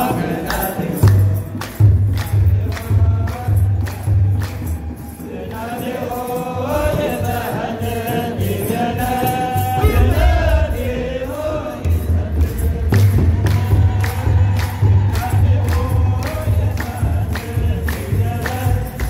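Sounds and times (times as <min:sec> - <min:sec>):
clergy chanting a hymn: 0:00.0 - 0:19.0
jingling sistrums: 0:00.0 - 0:19.0
deep drum beat: 0:09.8 - 0:19.0.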